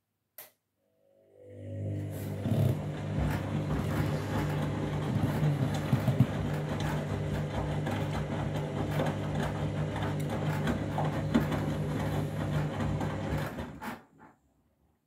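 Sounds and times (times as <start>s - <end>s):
washing machine motor hum: 1.2s - 14.2s.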